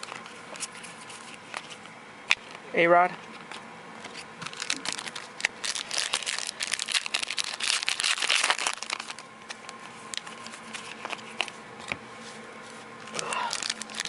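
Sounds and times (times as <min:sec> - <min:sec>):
plastic wrapper crackling: 0:04.1 - 0:11.5, 0:13.1 - 0:14.0.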